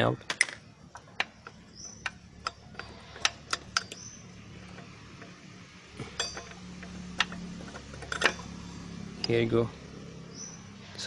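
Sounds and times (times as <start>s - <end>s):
metallic clicks of brake pad: 0.3s - 8.6s.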